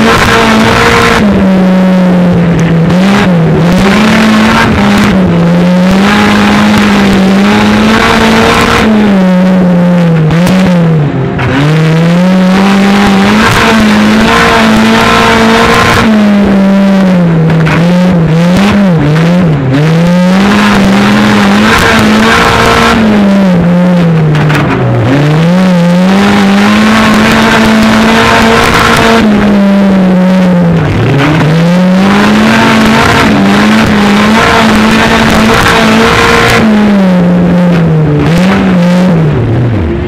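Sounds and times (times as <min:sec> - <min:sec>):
race car engine revving: 0:00.0 - 0:40.0.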